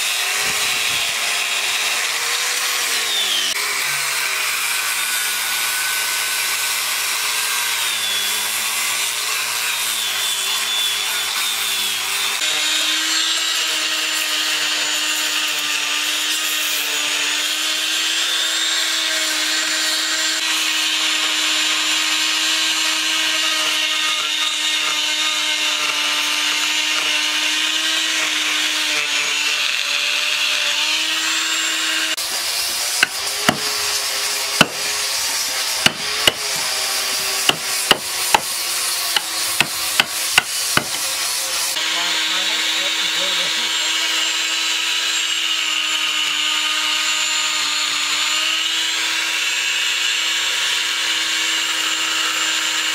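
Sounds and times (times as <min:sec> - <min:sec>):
angle grinder sanding wood: 0:00.0 - 0:52.9
rotary tool whining: 0:00.0 - 0:52.9
hammer striking chisel: 0:23.7 - 0:28.5, 0:32.7 - 0:35.0, 0:35.6 - 0:41.1.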